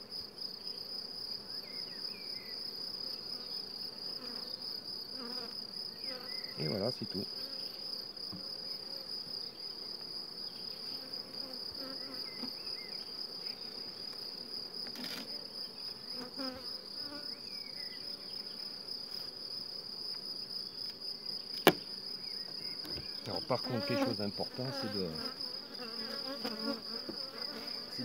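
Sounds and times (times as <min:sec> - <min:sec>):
high-pitched insect trill: 0:00.4 - 0:28.0
honeybees buzzing: 0:10.2 - 0:19.1, 0:21.1 - 0:28.0
sharp knock: 0:21.6 - 0:21.9.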